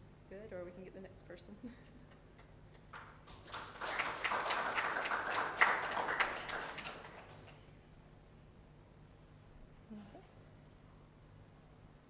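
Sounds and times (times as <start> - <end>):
audience applauding: 2.9 - 7.6.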